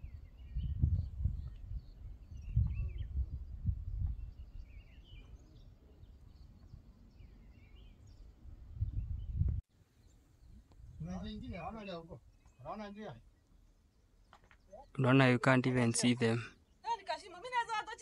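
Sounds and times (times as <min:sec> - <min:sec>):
wind gusting on microphone: 0:00.0 - 0:09.6, 0:10.4 - 0:11.8
birds chirping: 0:00.0 - 0:18.0.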